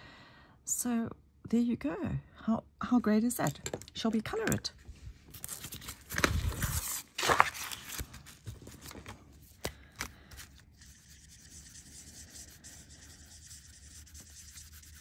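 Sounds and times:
marker rubbing on metal tape: 10.6 - 15.0.

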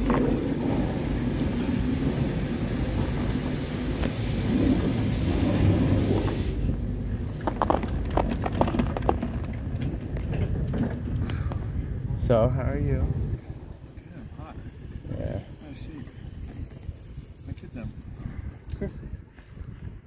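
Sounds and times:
chairlift hiss: 0.0 - 6.8
chairlift machinery rumble: 0.0 - 17.5.

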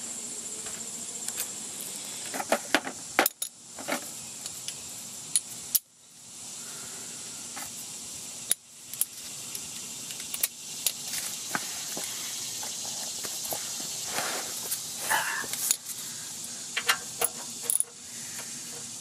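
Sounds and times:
steady hiss: 0.0 - 19.0
wrench clicking on metal: 16.8 - 18.0.

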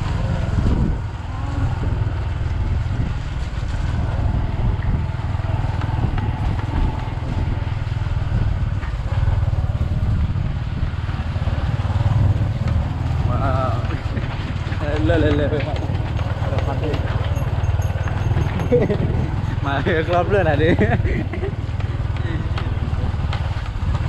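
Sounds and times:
motorcycle engine rumbling: 0.0 - 24.0.

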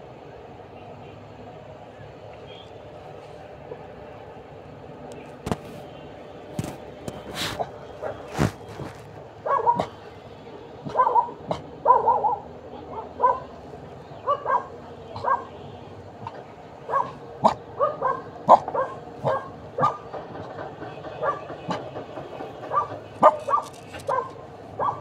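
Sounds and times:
dog barking: 7.5 - 8.5, 9.4 - 10.0, 10.8 - 13.6, 14.2 - 15.6, 16.2 - 20.1, 21.2 - 21.8, 22.6 - 25.0.

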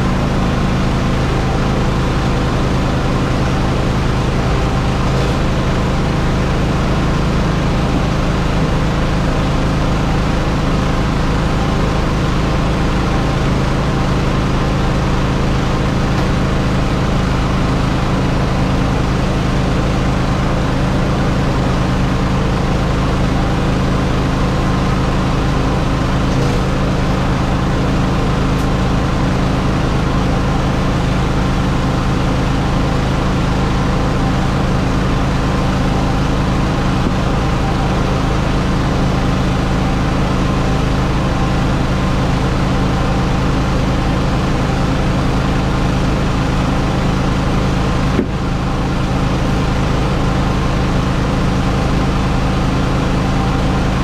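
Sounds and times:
engine droning hum: 0.0 - 54.0.

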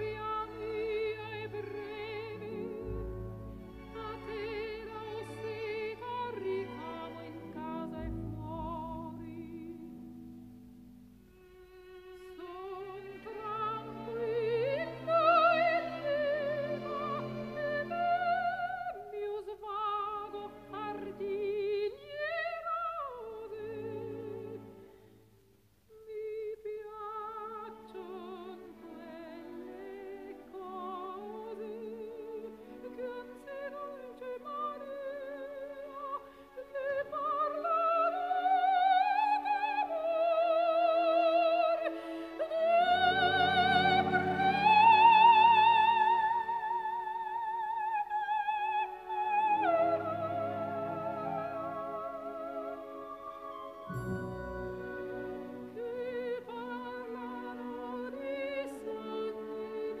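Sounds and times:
wordless opera-like vocal melody: 0.0 - 10.2, 11.6 - 25.2, 25.9 - 60.0
low musical accompaniment: 0.0 - 24.9, 48.6 - 60.0.

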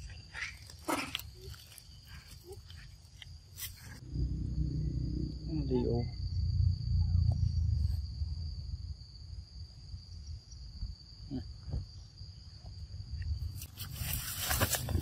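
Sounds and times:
low rumble: 4.0 - 10.4.

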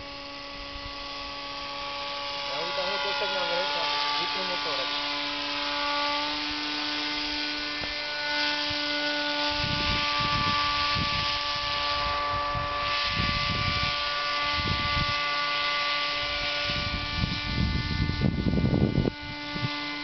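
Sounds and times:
paramotor engine buzzing: 0.0 - 20.0
wind buffeting microphone: 6.3 - 15.5, 16.2 - 20.0.

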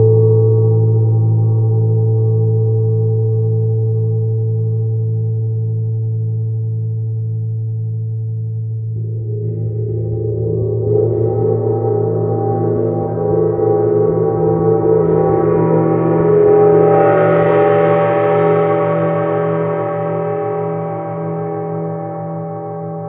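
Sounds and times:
large gong ringing: 9.0 - 21.2.

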